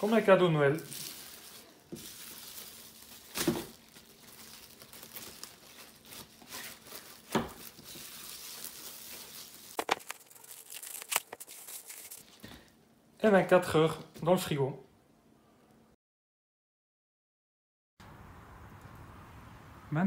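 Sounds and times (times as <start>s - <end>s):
cling film crinkling: 0.0s - 12.7s.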